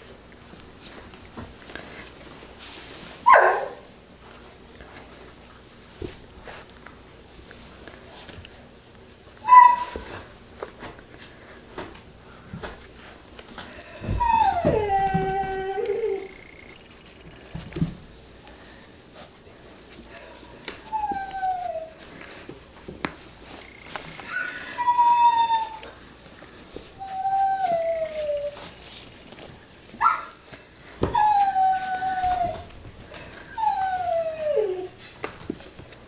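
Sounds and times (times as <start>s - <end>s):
puppies whining: 0.5s - 2.2s, 3.2s - 22.6s, 23.4s - 35.3s
puppy squeals: 8.6s - 10.3s, 11.0s - 13.0s, 13.6s - 16.4s, 17.5s - 22.0s, 23.7s - 26.0s, 26.7s - 29.3s, 30.0s - 34.9s.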